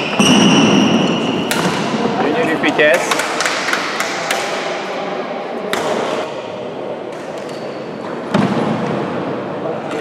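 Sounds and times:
rackets hitting shuttlecock: 0.0s - 2.2s, 5.7s - 6.3s
echoing sports hall noise: 0.0s - 10.0s.

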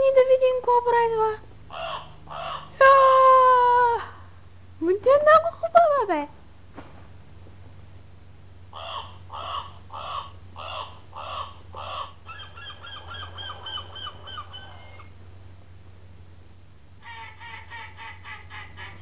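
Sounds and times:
recorded squawking animal calls: 1.7s - 3.0s, 8.7s - 15.2s, 17.0s - 19.0s.

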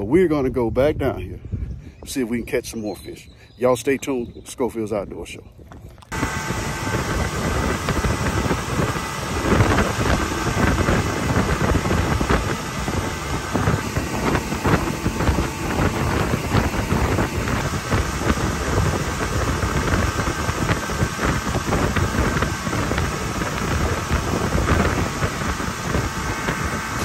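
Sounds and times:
wind buffeting microphone: 0.0s - 27.0s
motor whine: 5.9s - 27.0s.

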